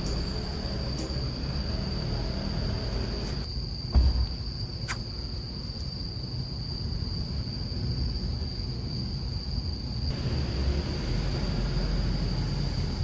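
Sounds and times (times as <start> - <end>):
crickets trilling: 0.0 - 13.0
soft thump: 3.9 - 4.4.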